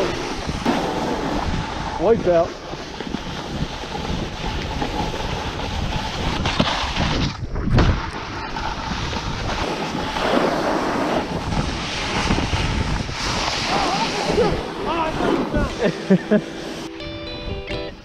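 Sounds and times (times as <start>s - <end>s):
snowboard sliding on snow: 0.0s - 17.0s
wind rushing over microphone: 0.0s - 18.0s.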